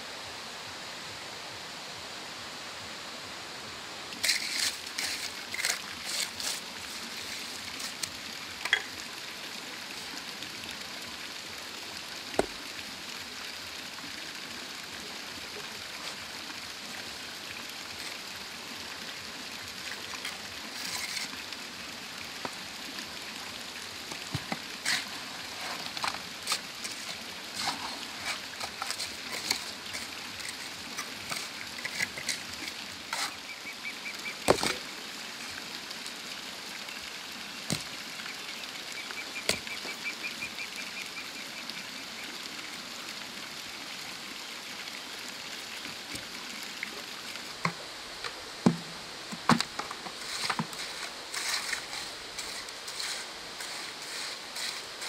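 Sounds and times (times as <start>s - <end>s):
trowel scraping and knocking: 4.2s - 8.9s, 24.1s - 33.4s, 34.5s - 34.8s, 48.6s - 54.9s.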